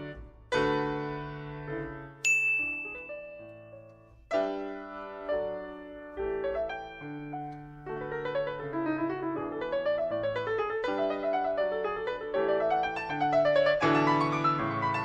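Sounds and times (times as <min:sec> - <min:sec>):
piano chords: 0:00.0 - 0:15.0
bright bell ding: 0:02.2 - 0:04.1.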